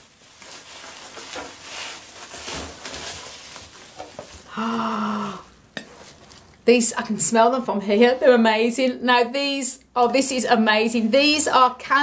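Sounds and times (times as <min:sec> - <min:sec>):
bubble wrap crinkling: 0:00.0 - 0:06.6.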